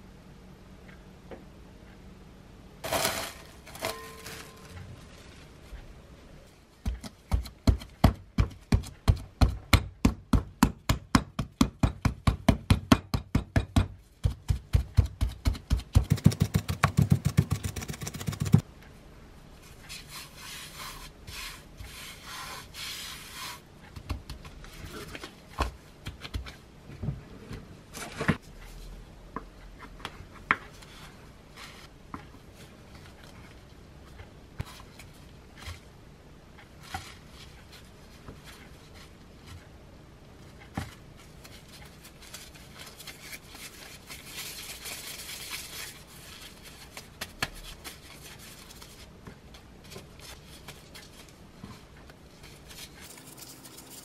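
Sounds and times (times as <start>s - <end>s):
hand rubbing flour on board: 19.9s - 23.6s.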